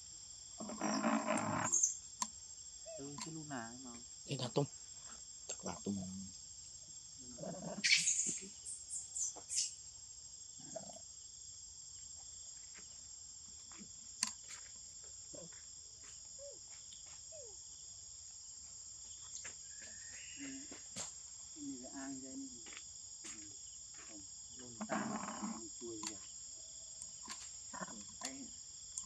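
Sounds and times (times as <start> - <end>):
insects droning: 0.0 - 29.0
macaque squeals: 7.6 - 8.6.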